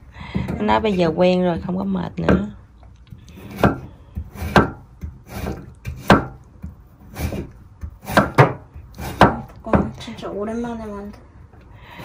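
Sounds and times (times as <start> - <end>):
knife chopping on cutting board: 3.4 - 9.9.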